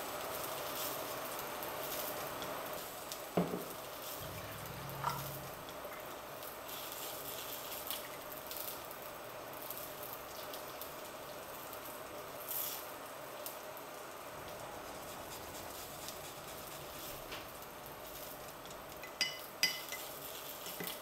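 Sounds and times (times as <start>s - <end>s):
liquid pouring into glass jug: 4.2s - 6.1s.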